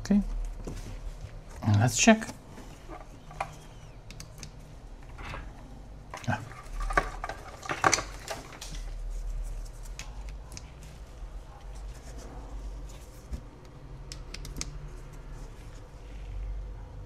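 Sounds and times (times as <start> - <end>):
cable handling clicks: 1.7 - 5.4, 6.1 - 8.9.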